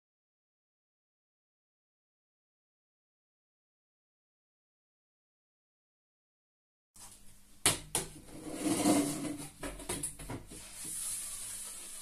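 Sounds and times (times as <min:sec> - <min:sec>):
plastic pipe scraping: 0:08.2 - 0:12.0
plastic pipe knocking: 0:09.1 - 0:10.6.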